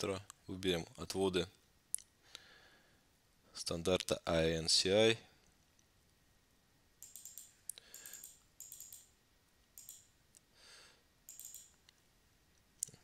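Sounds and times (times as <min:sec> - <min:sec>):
computer mouse clicks: 0:07.0 - 0:09.1, 0:09.8 - 0:10.1, 0:11.3 - 0:12.0.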